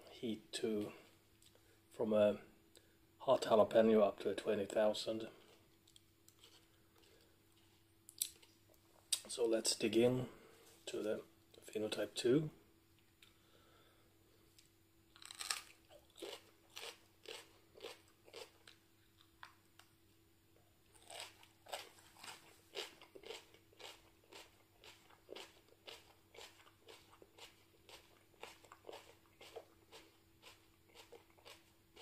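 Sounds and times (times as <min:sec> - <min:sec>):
crunchy chewing: 0:15.1 - 0:19.9, 0:20.9 - 0:32.0.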